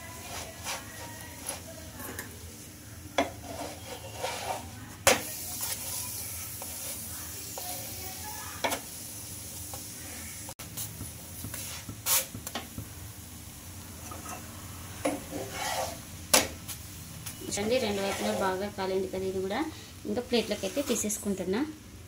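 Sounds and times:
wooden spatula scraping a pan: 0.0 - 2.3, 3.2 - 8.8, 11.4 - 12.4, 14.0 - 16.1, 17.4 - 18.8, 19.6 - 21.4
oil sizzling in a pan: 0.0 - 22.0.

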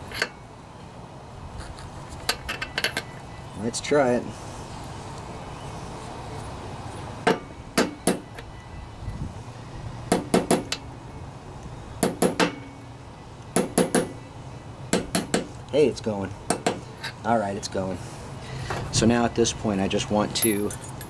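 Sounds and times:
hammer tapping on metal: 7.2 - 8.4, 12.0 - 12.7, 13.6 - 14.2, 14.9 - 15.5, 16.5 - 16.8.

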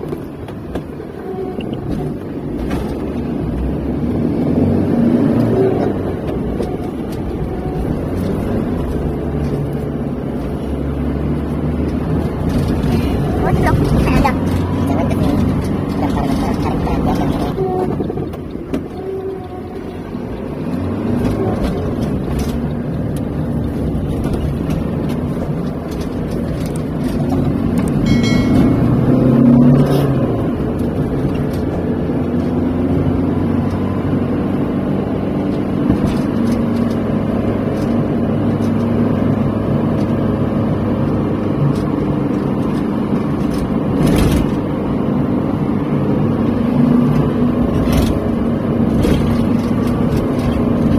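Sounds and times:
car engine and road noise: 0.0 - 50.9
short high tone: 28.0 - 30.2.

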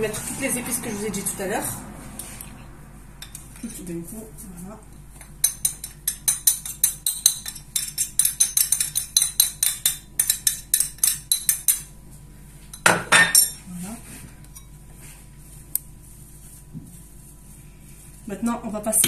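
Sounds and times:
scrape: 2.0 - 2.6, 14.0 - 18.3.

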